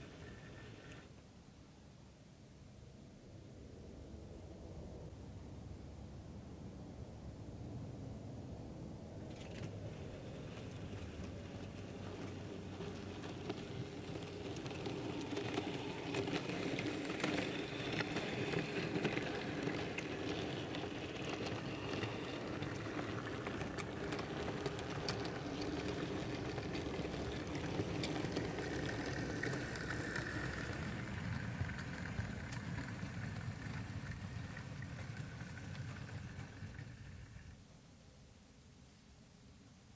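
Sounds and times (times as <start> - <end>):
model train motor hum: 0.0 - 1.1, 9.3 - 37.6
wheels clicking over rail joints: 9.3 - 37.6.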